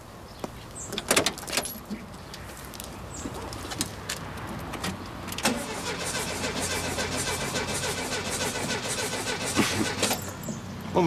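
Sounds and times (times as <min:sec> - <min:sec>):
car starter cranking engine: 0:05.4 - 0:10.6.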